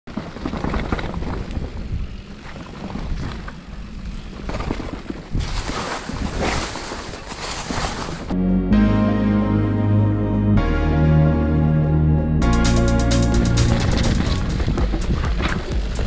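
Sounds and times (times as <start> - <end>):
bike knocking and rattling: 0.1 - 8.3, 13.4 - 16.0
bike tyre rumble: 0.1 - 8.4, 13.2 - 16.0
music: 8.3 - 16.0.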